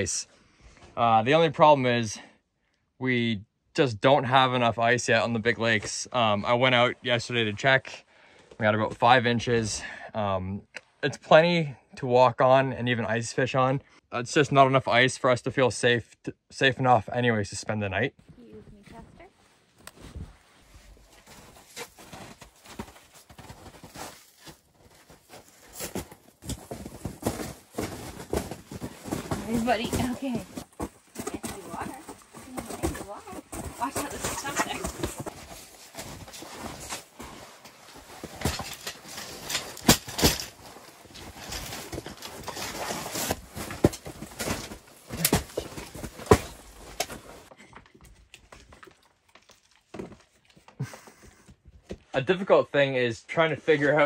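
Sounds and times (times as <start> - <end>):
footsteps crunching on snow: 20.0 - 37.9
foam tiles thudding on snow: 21.3 - 37.3.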